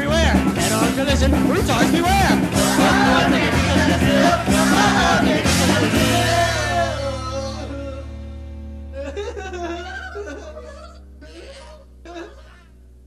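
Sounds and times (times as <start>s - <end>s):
rock song with singing: 0.0s - 8.8s.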